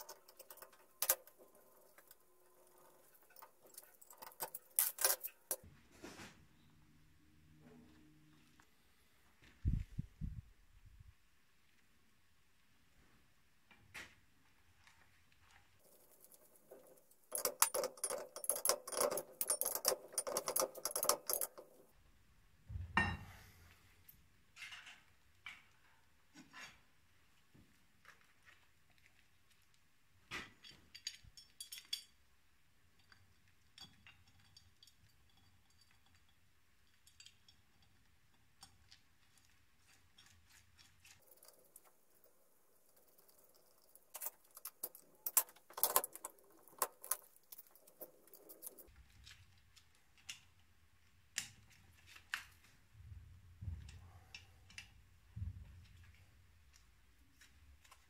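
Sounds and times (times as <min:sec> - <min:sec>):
metal parts clinking and rattling: 0:00.0 - 0:05.6, 0:15.8 - 0:21.9, 0:40.2 - 0:49.4.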